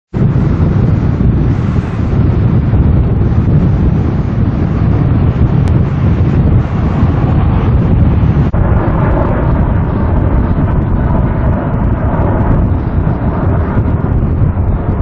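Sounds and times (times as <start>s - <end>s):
gusty wind on microphone: 0.1s - 15.0s.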